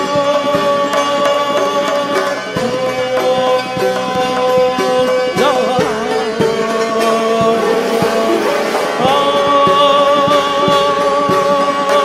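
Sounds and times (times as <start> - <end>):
sustained wavering melody: 0.0 - 12.0
short struck notes: 5.7 - 10.8.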